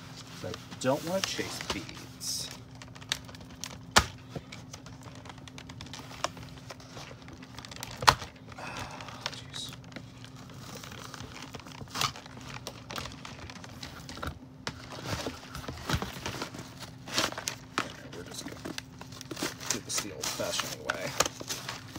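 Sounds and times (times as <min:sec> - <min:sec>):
plastic blister tray crinkling: 0:00.2 - 0:21.9.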